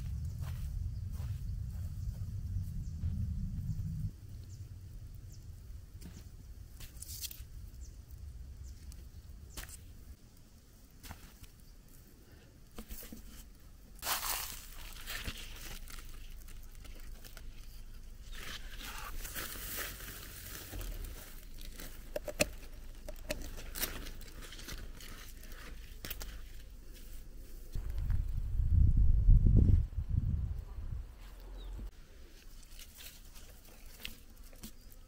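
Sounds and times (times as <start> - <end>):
rustling crinkling handling noise: 12.7 - 28.1, 32.2 - 35.0.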